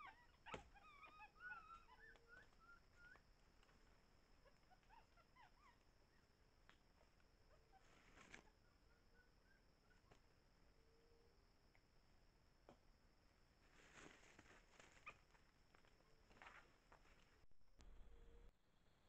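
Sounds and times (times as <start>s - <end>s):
faint high animal chirping: 0.0s - 3.2s, 4.4s - 6.4s, 7.0s - 10.2s.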